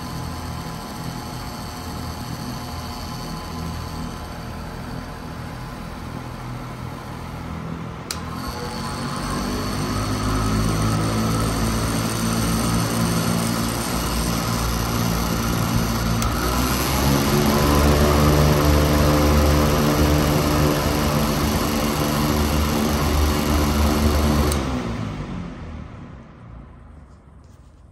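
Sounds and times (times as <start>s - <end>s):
fan motor hum and blade rush: 0.0s - 26.3s
fan switch click: 8.1s - 8.4s.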